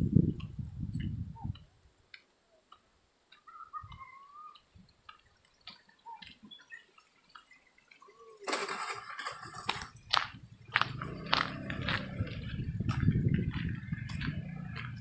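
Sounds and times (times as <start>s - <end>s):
faint ticks: 0.4s - 8.1s.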